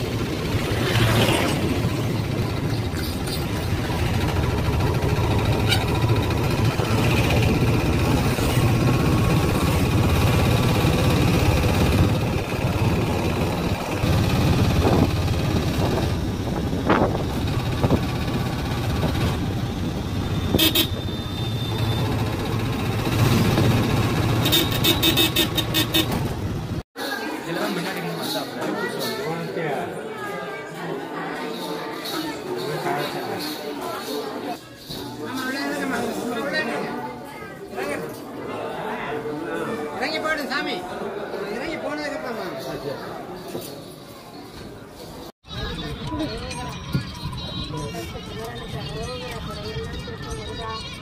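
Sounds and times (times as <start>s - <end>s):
auto rickshaw engine running: 0.0s - 26.8s
road noise: 0.0s - 26.8s
vehicle horns tooting: 20.5s - 22.2s, 24.3s - 26.3s.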